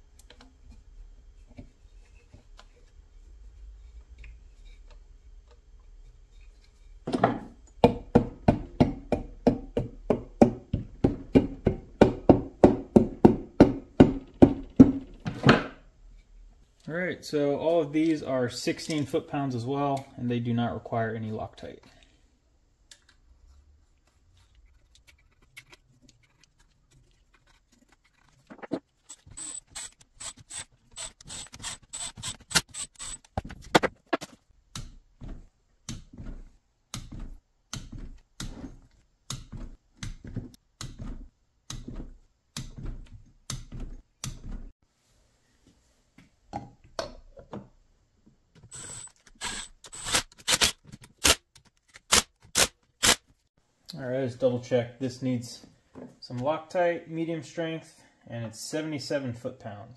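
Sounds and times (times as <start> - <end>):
hand ratchet clicking: 29.1 - 33.3.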